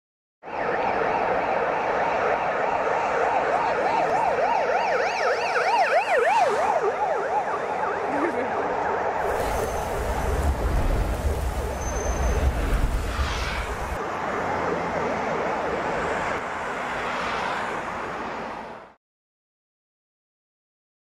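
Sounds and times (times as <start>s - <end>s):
siren yelping: 0.4s - 14.0s
steady wash of noise: 9.2s - 14.0s.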